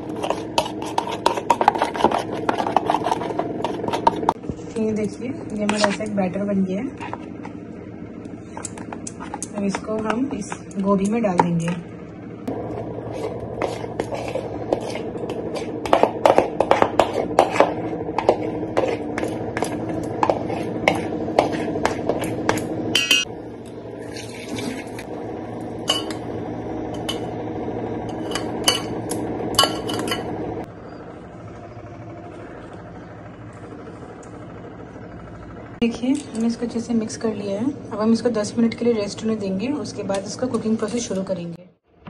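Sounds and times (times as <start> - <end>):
steady hum: 0.0 - 42.0
spoon clinking and scraping: 25.9 - 26.2, 28.1 - 30.3.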